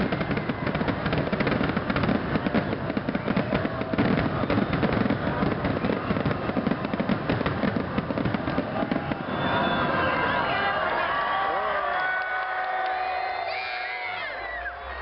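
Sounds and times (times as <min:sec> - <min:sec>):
fireworks bursting and crackling: 0:00.0 - 0:10.6.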